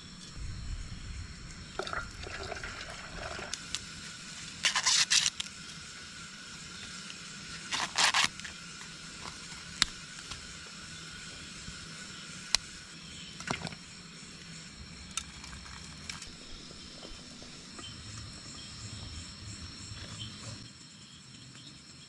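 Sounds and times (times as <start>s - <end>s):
crickets trilling: 0.0s - 22.0s
corn husk rustle: 2.6s - 5.5s, 7.4s - 10.2s.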